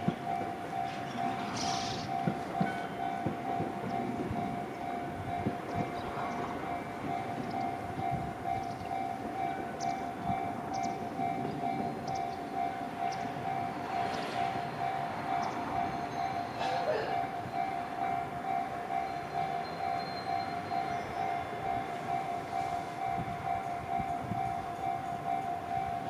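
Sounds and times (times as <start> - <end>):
level-crossing warning bell: 0.0 - 26.0.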